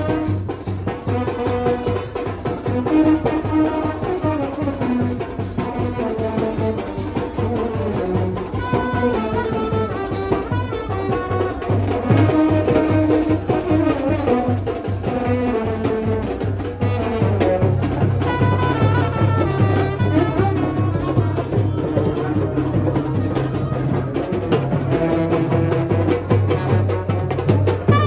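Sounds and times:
horns playing a melody: 0.0 - 28.0
steady drum beat: 0.0 - 28.0.

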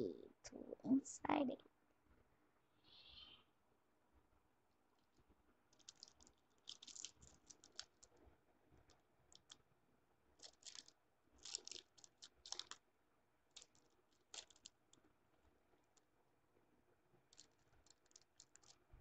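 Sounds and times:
plastic packet crinkling: 5.7 - 8.2, 9.3 - 9.6, 10.4 - 12.8, 13.5 - 14.8, 17.3 - 18.9.

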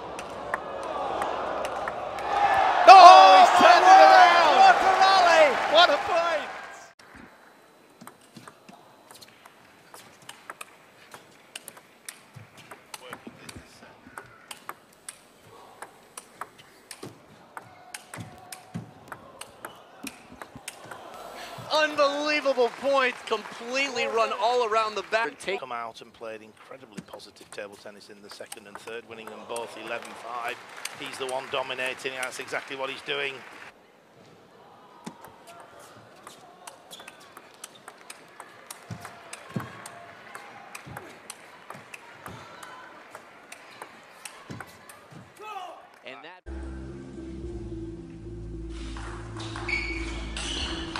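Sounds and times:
table tennis ball clicking: 10.2 - 13.3
table tennis ball clicks: 14.2 - 20.9.

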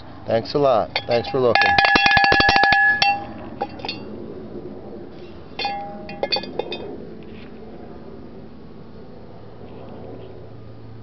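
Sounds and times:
cowbell clapper ringing: 1.0 - 4.0, 5.6 - 6.5
light clanks of cowbell: 1.0 - 4.0, 5.6 - 6.9.

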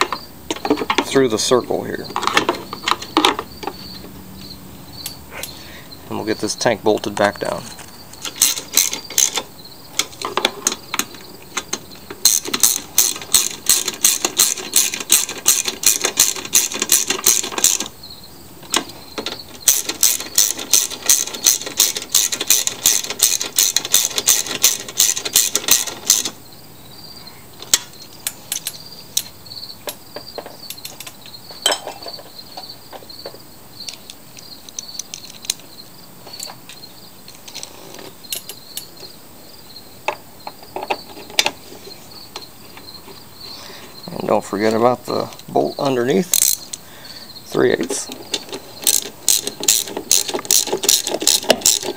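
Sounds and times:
ratchet wrench clicking: 8.2 - 9.4, 11.7 - 17.9, 19.6 - 26.3, 46.3 - 46.8, 48.3 - 51.9.

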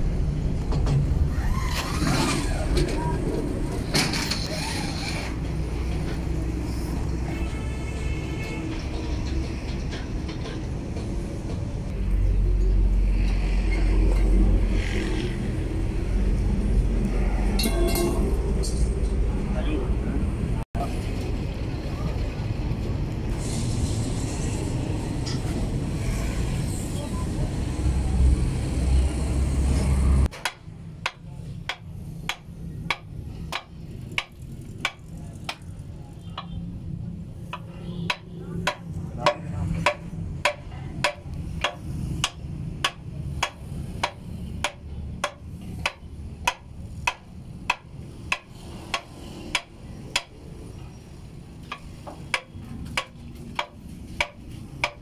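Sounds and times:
tool tapping on steel: 30.3 - 35.6, 37.5 - 50.4, 51.6 - 55.0.

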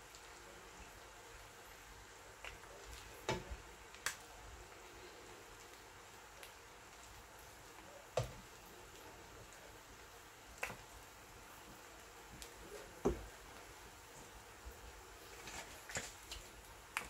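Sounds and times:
faint background hiss: 0.0 - 17.0.

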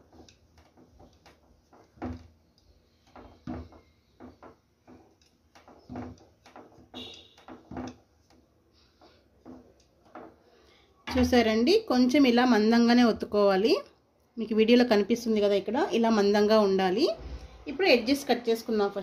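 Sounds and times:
rolling pin knocking on table: 0.0 - 2.4, 3.0 - 8.4, 9.0 - 10.4
rolling pin rolling dough: 0.0 - 13.6.

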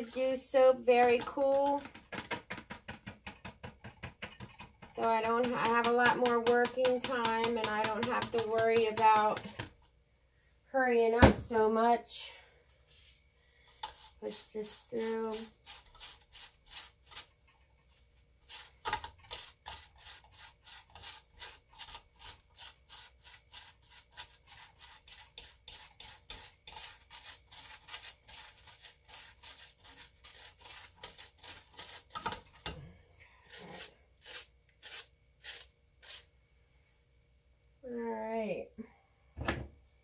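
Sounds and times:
utensil rubbing against strainer: 0.0 - 1.9, 13.8 - 17.4, 18.4 - 32.7, 33.4 - 36.3.

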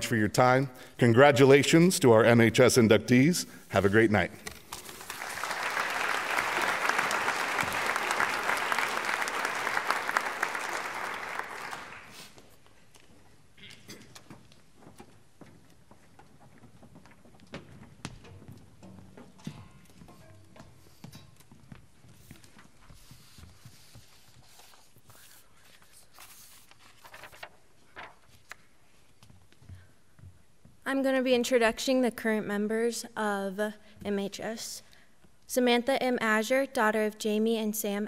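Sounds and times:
audience applauding: 4.8 - 12.3
faint footsteps: 11.9 - 25.3
small knocks and rustles: 13.0 - 24.4.

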